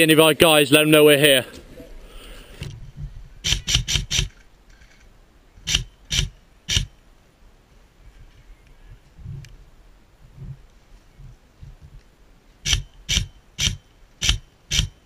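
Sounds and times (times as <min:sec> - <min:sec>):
airsoft rifle shots: 0:03.4 - 0:04.4, 0:05.7 - 0:06.9, 0:12.6 - 0:15.0.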